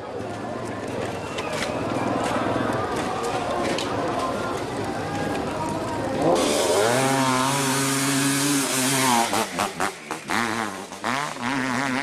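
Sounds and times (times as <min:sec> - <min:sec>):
dirt bike engine revving: 0:06.2 - 0:12.0.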